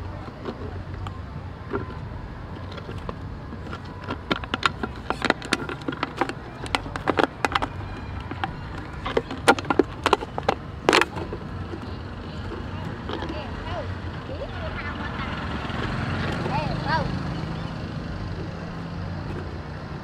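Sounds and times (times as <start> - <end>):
plastic bottle crackling: 0.1 - 13.4.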